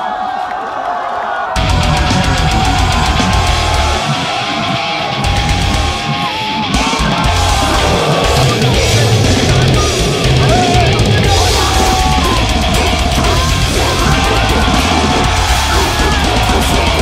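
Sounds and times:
loud heavy metal music: 1.6s - 17.0s.

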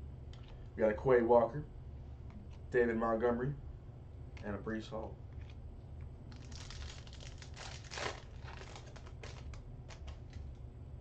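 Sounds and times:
foil wrapper crinkling: 6.3s - 10.6s.

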